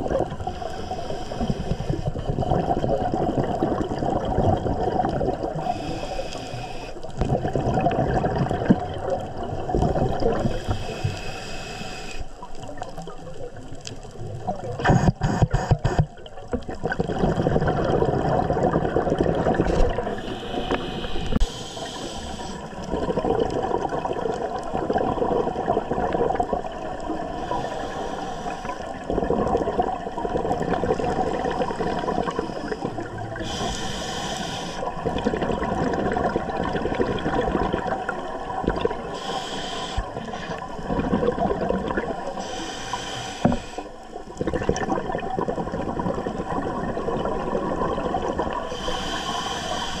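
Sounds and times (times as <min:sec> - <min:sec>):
gurgle of exhaled bubbles: 0:00.0 - 0:06.1, 0:07.1 - 0:11.0, 0:12.4 - 0:42.7, 0:43.4 - 0:50.0
regulator hissing inhales: 0:00.5 - 0:02.1, 0:05.6 - 0:07.1, 0:10.5 - 0:12.4, 0:20.1 - 0:22.8, 0:27.4 - 0:29.0, 0:31.6 - 0:35.0, 0:39.1 - 0:40.6, 0:42.4 - 0:44.1, 0:48.7 - 0:50.0.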